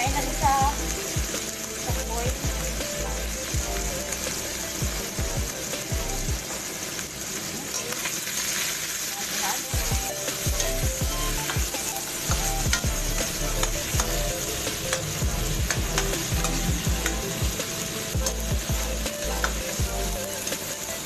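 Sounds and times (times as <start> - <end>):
food sizzling in wok: 0.0 - 21.0.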